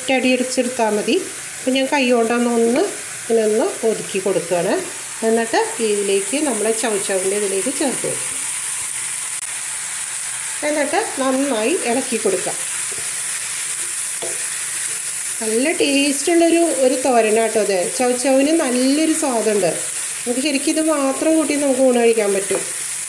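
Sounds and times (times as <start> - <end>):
food sizzling in pan: 0.0 - 23.0.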